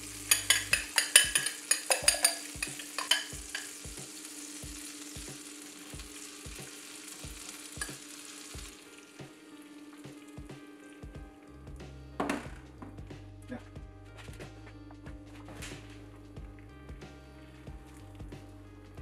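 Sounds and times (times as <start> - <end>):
eggs sizzling in butter: 0.0 - 11.2
fork clinking against glass bowl: 0.3 - 3.7.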